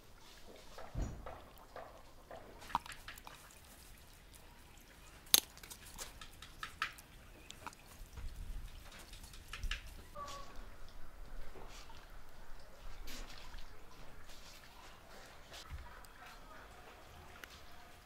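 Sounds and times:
chicken squelching on skewers: 0:00.2 - 0:10.6.

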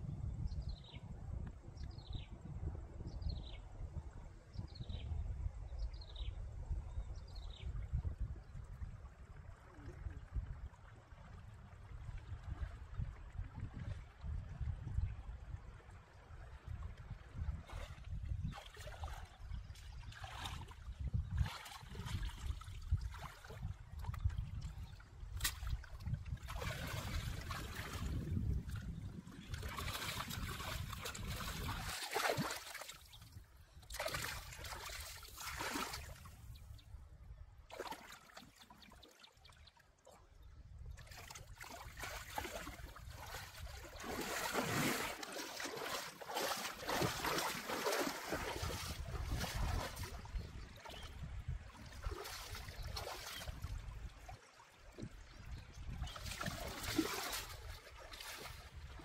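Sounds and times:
flowing stream: 0:08.0 - 0:36.9, 0:37.5 - 0:59.0
water splashing from wading: 0:17.5 - 0:24.2, 0:25.2 - 0:36.5, 0:37.7 - 0:40.3, 0:41.0 - 0:59.0.

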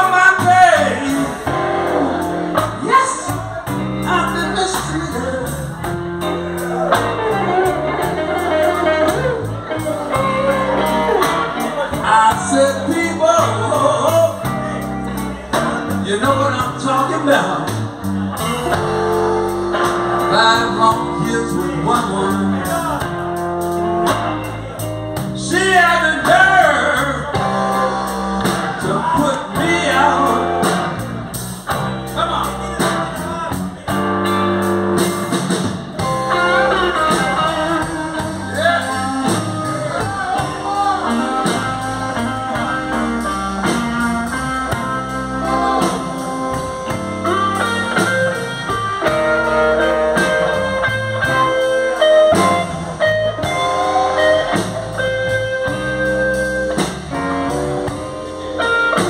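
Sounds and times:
man singing: 0:00.0 - 0:18.5, 0:20.2 - 0:23.2, 0:25.2 - 0:31.1, 0:36.2 - 0:44.0, 0:44.7 - 0:47.0
drum kit: 0:00.0 - 0:59.0
electric guitars: 0:00.0 - 0:59.0.

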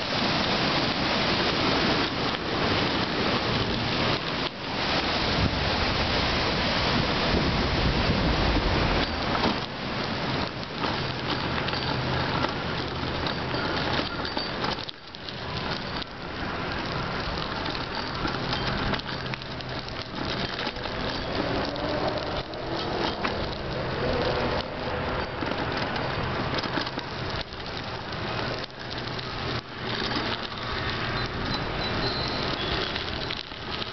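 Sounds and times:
bicycle tyres rolling over gravel: 0:00.0 - 0:33.9
wind on microphone: 0:05.0 - 0:09.4.

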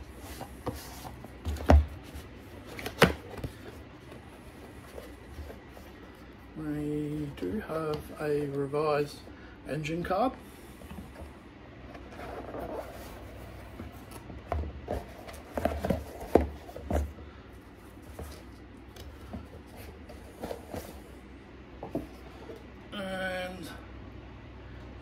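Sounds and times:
cardboard box rustling: 0:00.0 - 0:06.2, 0:12.0 - 0:21.2.

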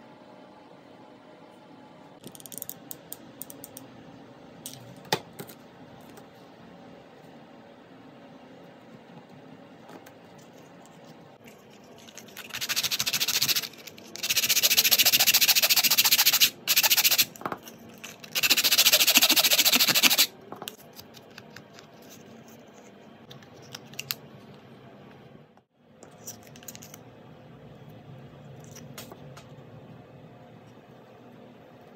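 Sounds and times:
sanding block rubbing wood: 0:14.2 - 0:17.3, 0:18.4 - 0:20.3.

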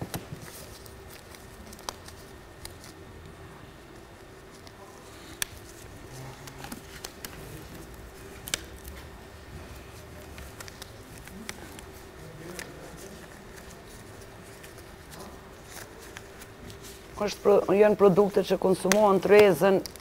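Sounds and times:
gloves rubbing and stretching: 0:00.0 - 0:20.0
low steady hum: 0:00.0 - 0:20.0
glove snaps: 0:04.6 - 0:05.8, 0:08.4 - 0:09.0, 0:10.2 - 0:11.9.

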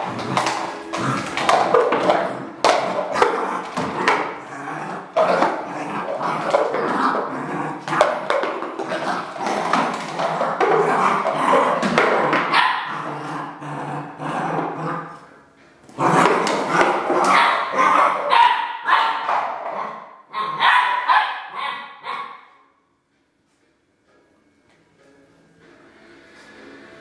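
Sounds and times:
puppy barking: 0:12.3 - 0:13.0, 0:16.8 - 0:22.6.

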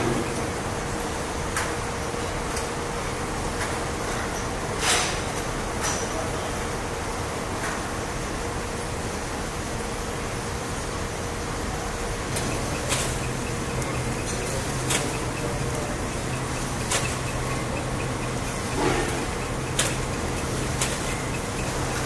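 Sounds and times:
wrapping machine humming: 0:11.7 - 0:22.0
machine clicks: 0:12.2 - 0:22.0.

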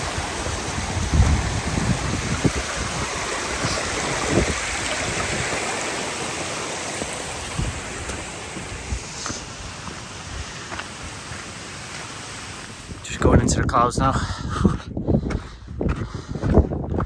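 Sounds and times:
stream running over rocks: 0:00.0 - 0:13.6
shoes stepping on wet stones: 0:02.3 - 0:12.8.

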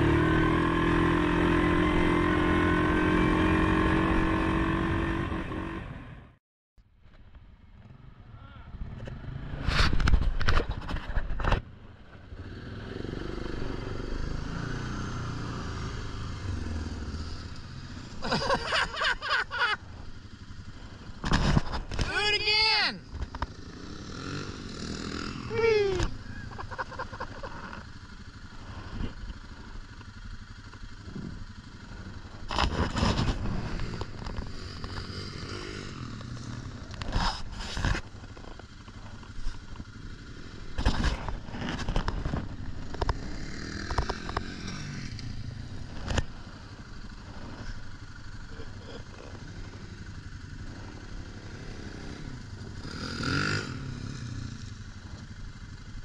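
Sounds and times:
vehicle engine idling: 0:25.5 - 0:32.7, 0:36.2 - 0:52.8, 0:53.8 - 0:56.0.

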